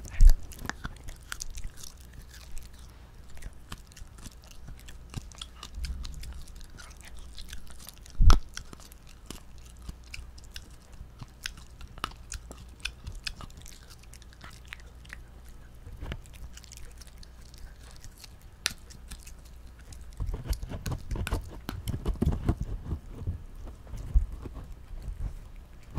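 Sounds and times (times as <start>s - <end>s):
dog chewing crunchy chew: 0.0s - 25.9s
low thuds: 5.7s - 6.6s.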